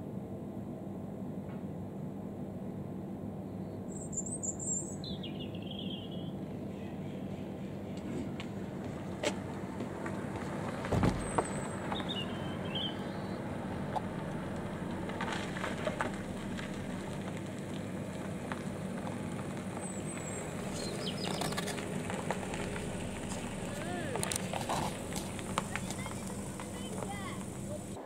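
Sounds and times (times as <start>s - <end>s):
car engine driving past: 8.0s - 28.0s.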